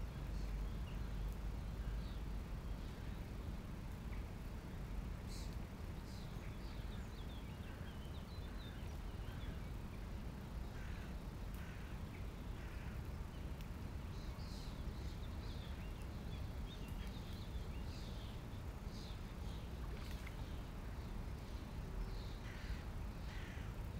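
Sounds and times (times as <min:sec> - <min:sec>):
small birds chirping: 0:00.0 - 0:23.9.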